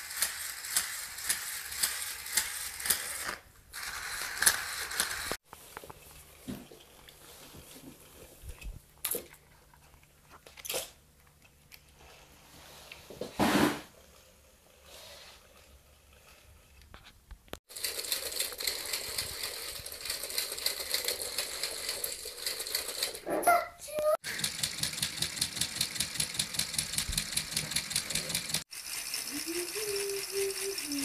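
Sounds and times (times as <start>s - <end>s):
plastic gears clicking: 0.0s - 5.4s, 17.7s - 23.2s, 24.2s - 31.0s.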